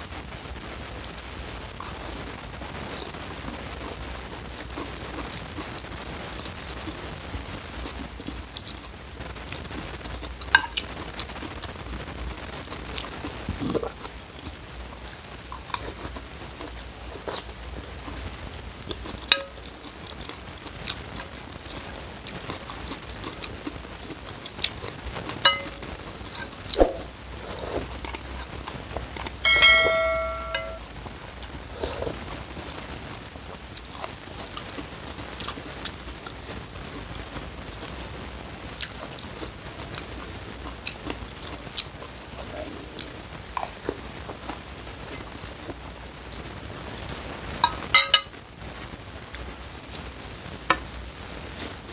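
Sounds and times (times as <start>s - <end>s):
chewing and slurping noodles: 3.8s - 29.4s, 38.8s - 45.8s
spoon clicking against ceramic bowl: 25.5s - 25.8s.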